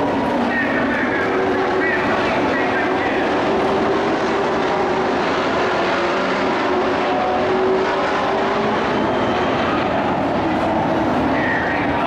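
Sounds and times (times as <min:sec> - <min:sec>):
racing truck engines droning: 0:00.0 - 0:12.0.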